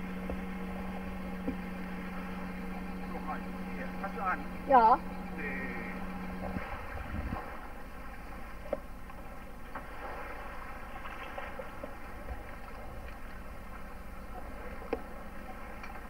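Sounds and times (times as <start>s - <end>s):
wind on microphone: 6.4s - 7.6s.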